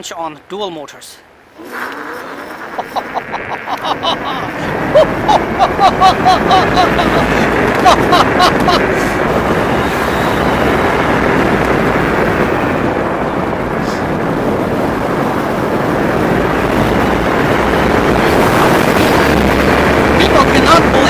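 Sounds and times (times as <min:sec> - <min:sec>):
wind rush on microphone: 0:01.3 - 0:21.0
tyre noise on wet pavement: 0:01.6 - 0:15.2.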